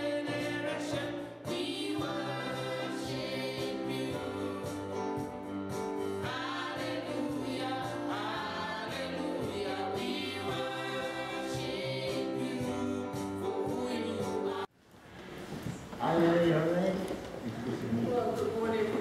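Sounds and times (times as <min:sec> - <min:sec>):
choir singing: 0:00.0 - 0:05.3, 0:06.0 - 0:14.7.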